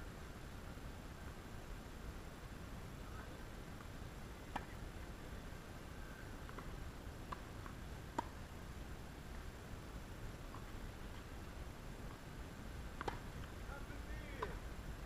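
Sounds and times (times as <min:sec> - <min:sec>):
tennis ball struck by rackets: 0:04.5 - 0:04.8, 0:07.3 - 0:08.4, 0:13.0 - 0:13.5, 0:14.2 - 0:14.6.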